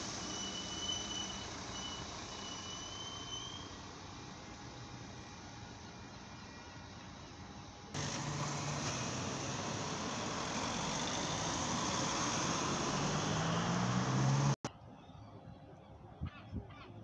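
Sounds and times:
tyres on wet tarmac: 0.0 - 14.7
outdoor ambience: 0.0 - 17.0
car engine hum rising: 8.0 - 14.7.

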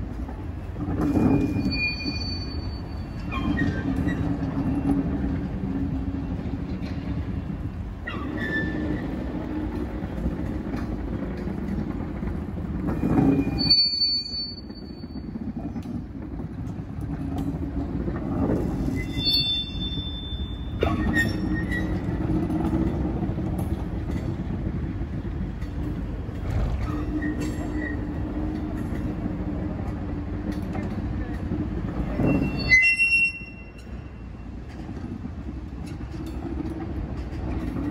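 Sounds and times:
train wheels rumbling: 0.0 - 37.9
high-pitched wheel squeals: 1.0 - 5.1, 8.0 - 9.3, 13.0 - 15.4, 18.7 - 22.4, 32.0 - 34.3
clicks over rail joints: 34.6 - 37.9.

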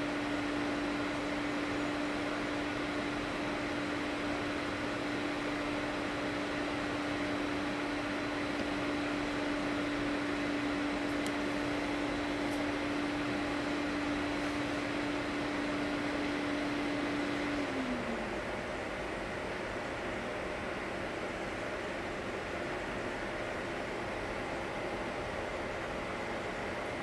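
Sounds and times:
motor humming: 0.0 - 19.0.

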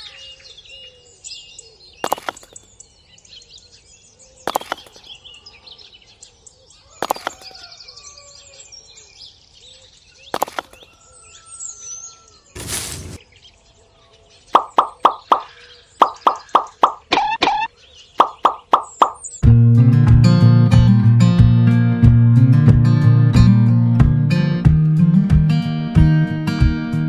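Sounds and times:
small birds chirping: 0.0 - 19.4
artificial grass rustle: 12.6 - 13.3.

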